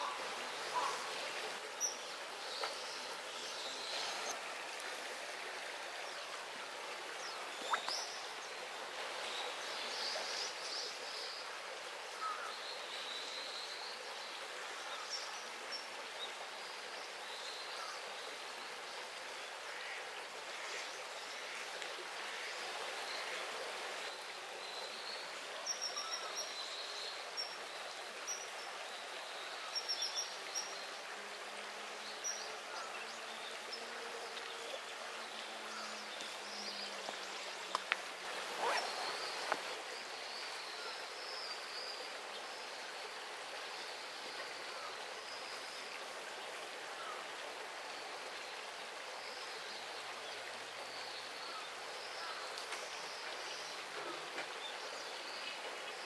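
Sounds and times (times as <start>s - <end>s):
river water flowing: 0.0s - 56.0s.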